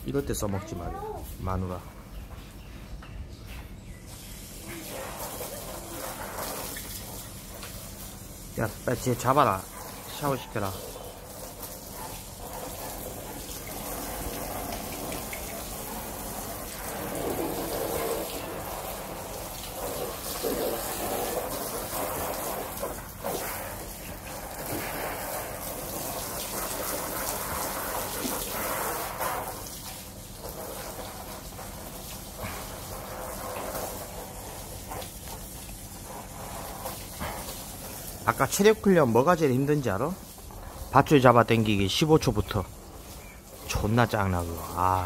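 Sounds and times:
water splashing into paddling pool: 4.1 - 45.0.

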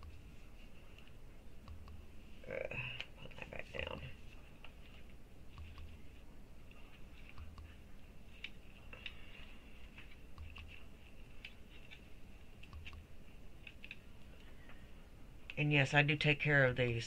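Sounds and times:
wig hair crackling and rustling: 3.0 - 14.7.

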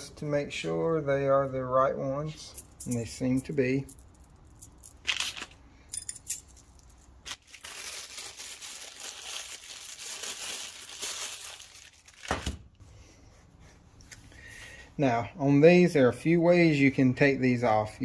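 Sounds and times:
plastic bag crinkling: 4.9 - 5.6, 6.6 - 12.6.

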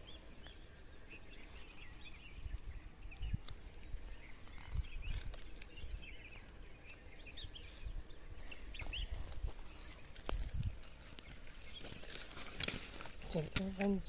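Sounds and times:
small birds chirping: 0.0 - 14.0
rope and net thumping and rustling: 9.4 - 14.0.

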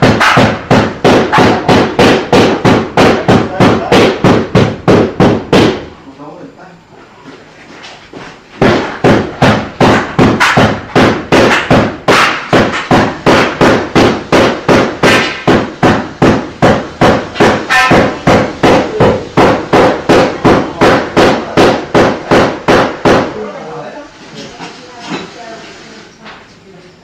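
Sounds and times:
hammer striking metal: 0.0 - 5.8, 8.6 - 23.3.

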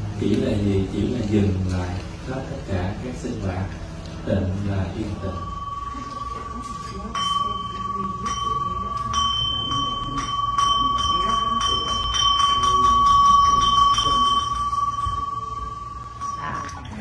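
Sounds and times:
bowl bell ringing: 4.2 - 17.0.

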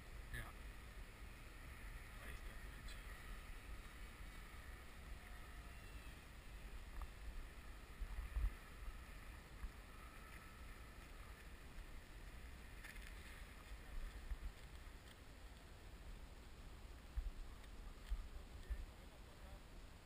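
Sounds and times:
distant model plane motor whine: 0.0 - 14.0.

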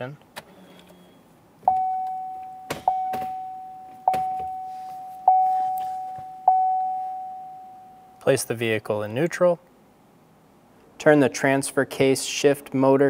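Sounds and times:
dashboard warning chime ding: 1.7 - 8.2.

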